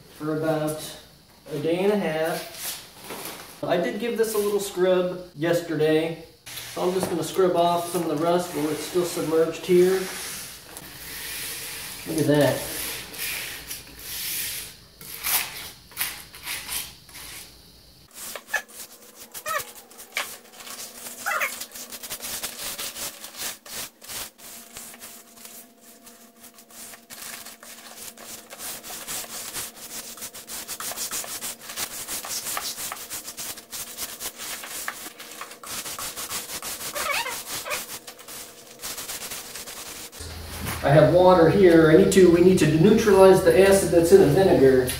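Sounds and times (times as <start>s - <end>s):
wet scrubbing on iron: 18.1s - 40.2s
short squeaks: 21.2s - 21.7s.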